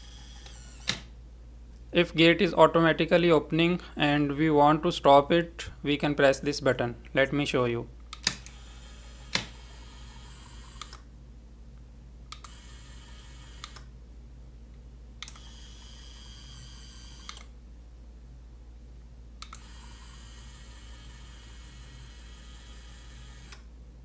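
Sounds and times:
small gear motor whirring: 0:00.0 - 0:01.0, 0:08.5 - 0:11.0, 0:15.3 - 0:17.4, 0:19.6 - 0:23.6.

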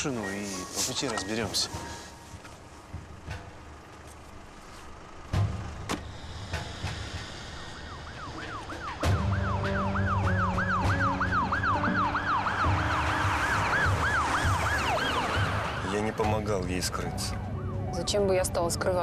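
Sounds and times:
police siren yelping: 0:07.6 - 0:16.2.

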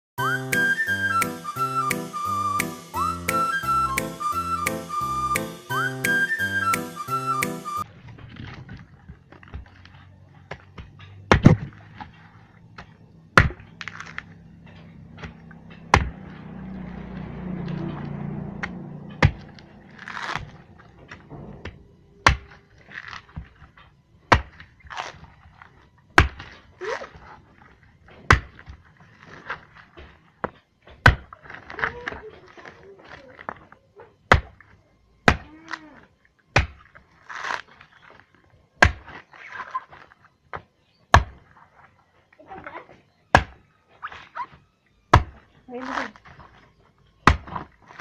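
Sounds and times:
knife chopping coconut husk: 0:15.2 - 0:16.3, 0:24.3 - 0:25.2, 0:26.1 - 0:26.6, 0:34.3 - 0:35.6, 0:36.5 - 0:37.8, 0:38.8 - 0:39.7, 0:41.1 - 0:41.5, 0:43.3 - 0:43.6, 0:45.1 - 0:46.2, 0:47.2 - 0:48.0.

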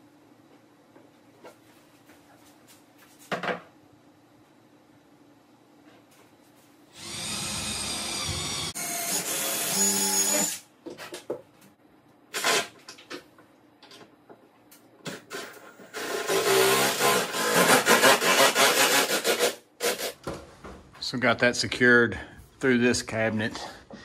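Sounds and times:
cordless drill driving screw: 0:07.0 - 0:10.6.

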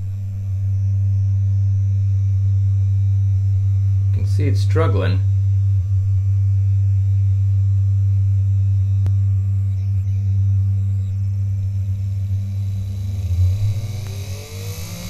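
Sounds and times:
small electric motor humming: 0:00.0 - 0:15.0.

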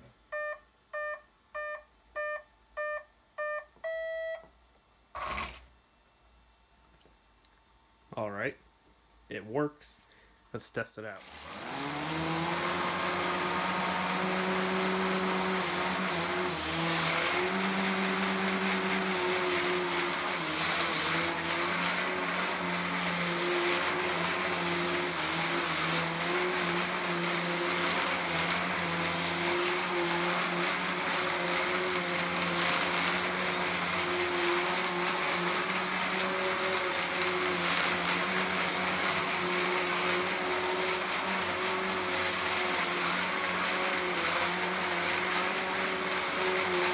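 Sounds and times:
robot weapon motor whine: 0:05.2 - 0:05.7, 0:11.2 - 0:46.9.

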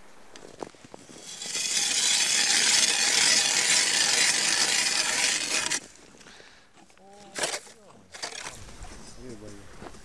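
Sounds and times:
ice auger grinding through ice: 0:00.8 - 0:06.0, 0:07.3 - 0:08.6.

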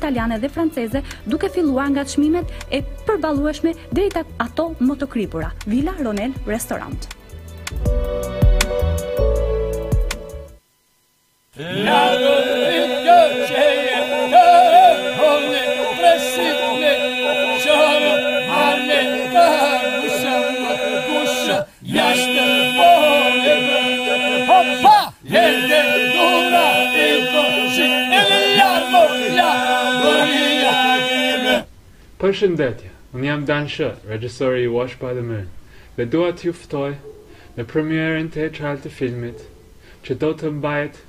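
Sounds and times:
held vocal drone: 0:11.6 - 0:31.7
polyphonic folk singing: 0:11.6 - 0:31.7.

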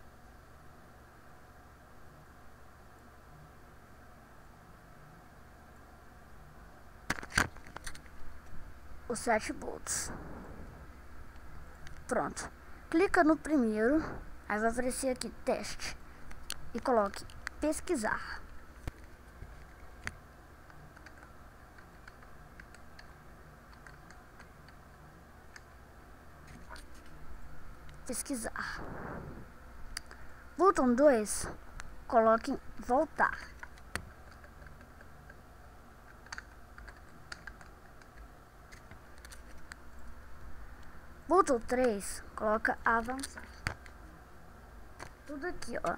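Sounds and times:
low steady hum: 0:00.0 - 0:45.9
keyboard keys clicking: 0:20.9 - 0:23.1, 0:36.1 - 0:39.4.

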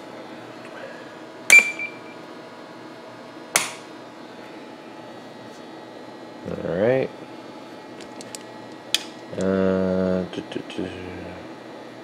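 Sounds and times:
brief high ring: 0:01.5 - 0:02.2.

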